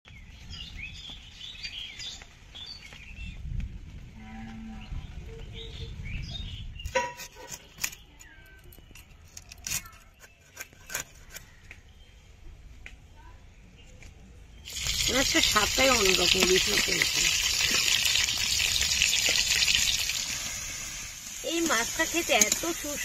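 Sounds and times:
birds chirping: 0.1s - 3.5s
knife scraping fish scales: 9.3s - 11.5s.

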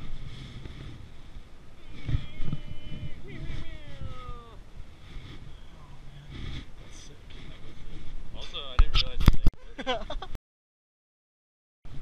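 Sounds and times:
person's voice: 1.9s - 4.6s.

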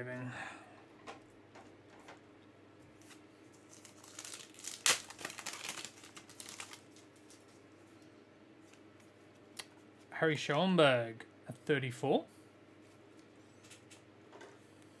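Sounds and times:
wrapper tearing and crinkling: 3.6s - 7.5s.

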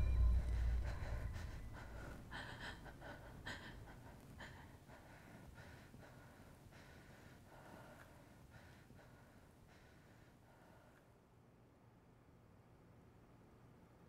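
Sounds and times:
low rumble: 0.0s - 3.2s.

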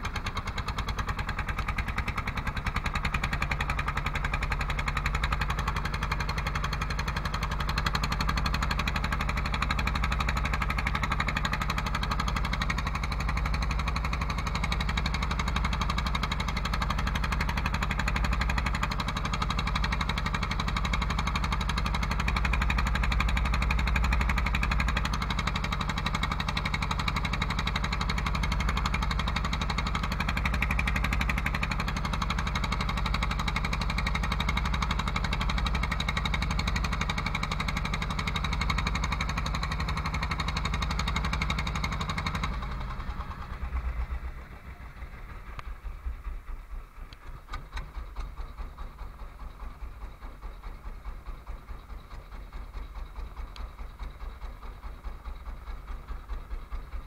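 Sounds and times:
boat engine chugging: 0.0s - 57.0s.

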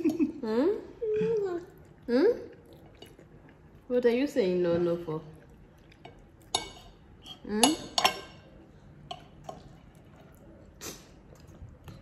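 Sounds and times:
cutlery clinking against bowls: 5.9s - 10.2s.

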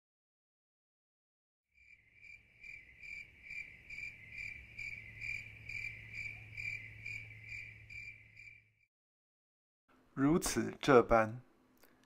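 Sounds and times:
crickets chirping: 1.8s - 8.8s.

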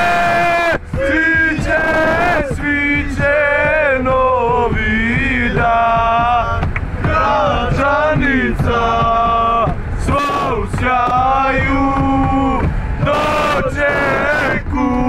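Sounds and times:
vehicle low rumble: 0.0s - 15.0s
young men chanting in unison: 0.0s - 15.0s.

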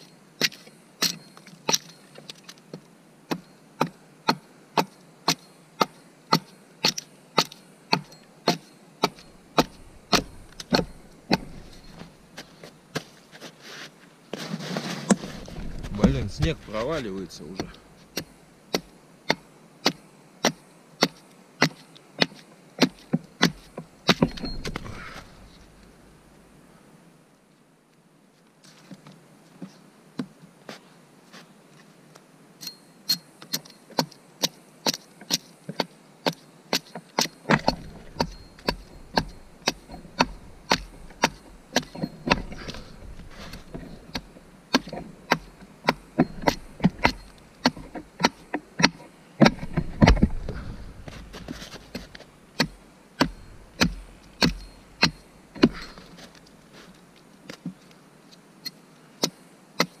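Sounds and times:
axe chopping wood: 3.3s - 12.1s, 15.1s - 25.8s, 33.5s - 56.4s, 59.2s - 60.0s
low rumble: 49.6s - 51.6s.

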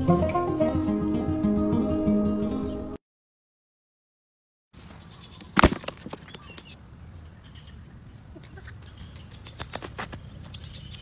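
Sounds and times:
outdoor background sound: 4.7s - 11.0s.

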